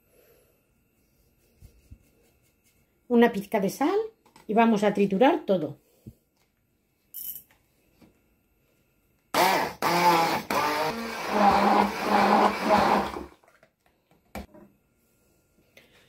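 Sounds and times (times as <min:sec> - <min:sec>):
stick blender motor: 0:09.3 - 0:13.4.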